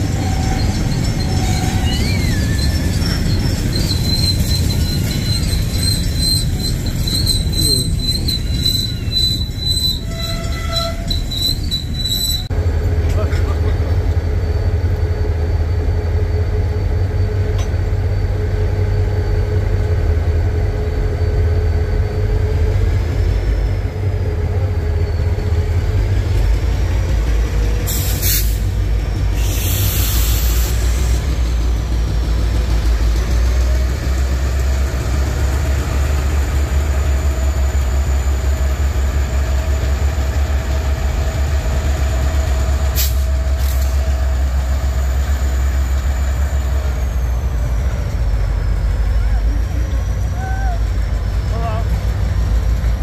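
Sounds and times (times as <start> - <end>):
freight train rumbling on rails: 0.0 - 53.0
hiss bursts: 27.9 - 28.8, 29.4 - 31.1.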